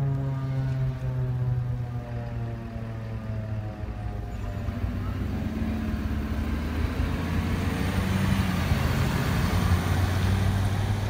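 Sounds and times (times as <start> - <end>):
warning siren falling tone: 0.0 - 10.2
vehicle driving past: 3.6 - 11.0.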